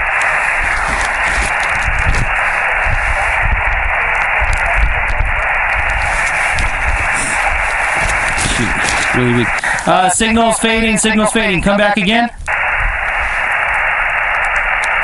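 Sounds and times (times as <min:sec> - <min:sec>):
radio static hiss: 0:00.0 - 0:15.0
weak radio station: 0:00.0 - 0:15.0.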